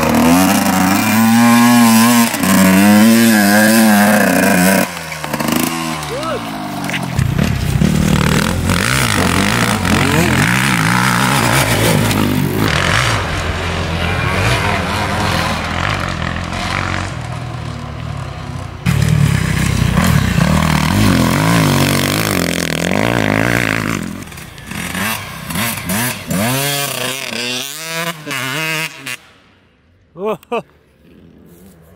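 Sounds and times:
dirt bike engines revving: 0:00.0 - 0:29.4.

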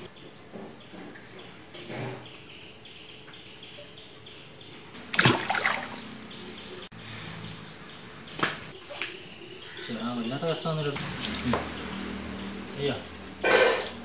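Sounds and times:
water splashing in fish tank: 0:05.1 - 0:06.3.

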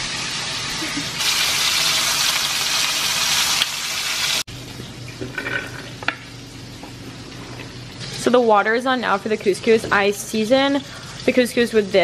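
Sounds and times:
chicken frying in hot oil: 0:00.0 - 0:05.2.

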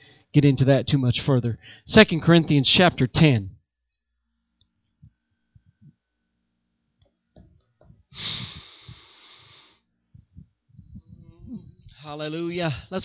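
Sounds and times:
breath into microphone: 0:08.1 - 0:11.3
microphone handling taps: 0:10.2 - 0:12.0.

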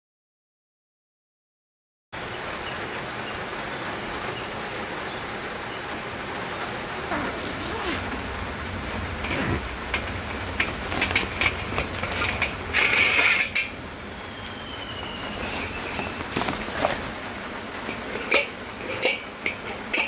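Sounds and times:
fabric case rustling: 0:07.1 - 0:08.3, 0:15.0 - 0:17.2
metal fire pit clanking: 0:08.6 - 0:15.0, 0:17.8 - 0:20.0.

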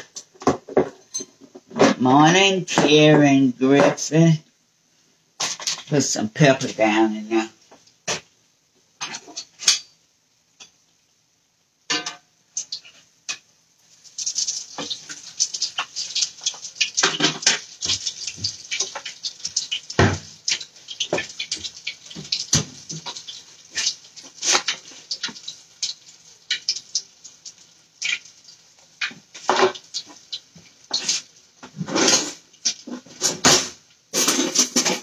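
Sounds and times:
utensils knocking against dishes: 0:15.8 - 0:19.1, 0:33.2 - 0:35.0.

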